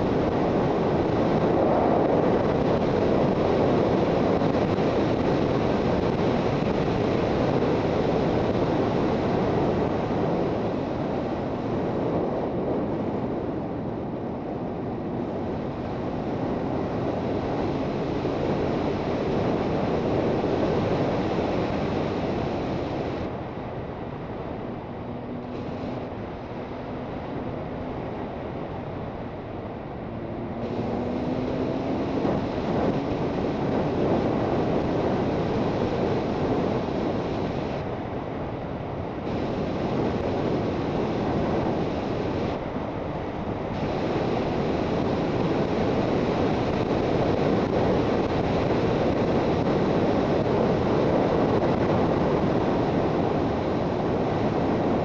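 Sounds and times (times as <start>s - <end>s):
wind rush over microphone: 0.0s - 55.0s
motorcycle engine accelerating: 24.6s - 36.4s.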